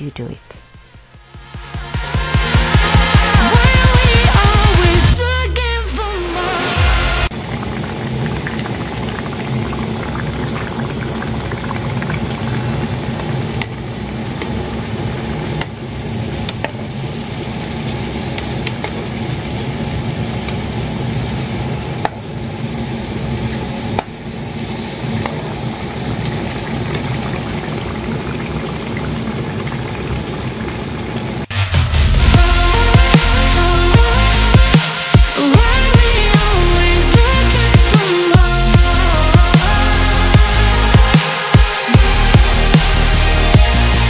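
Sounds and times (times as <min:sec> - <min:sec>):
dough sizzling in hot oil: 0:07.3 - 0:31.5.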